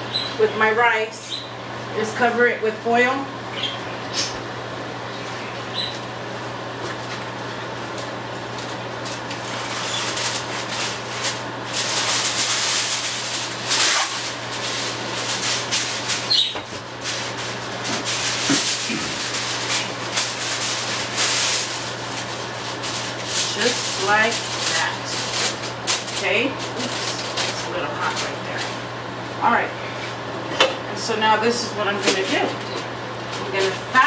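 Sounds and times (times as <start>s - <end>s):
steady low hum: 0.0s - 34.0s
aluminium foil crinkling: 6.8s - 28.9s, 31.9s - 34.0s.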